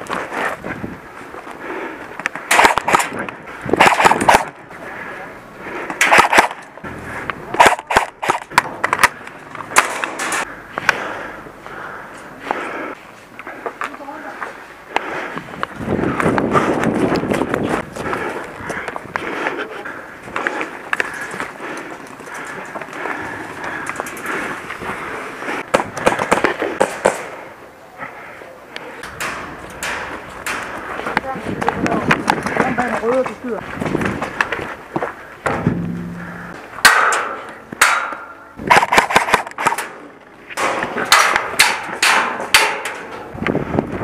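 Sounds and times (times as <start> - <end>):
airsoft gunfire: 2.5 - 3.1, 3.8 - 4.6, 6.0 - 6.6, 7.6 - 8.4
footsteps on gravel: 29.0 - 36.8.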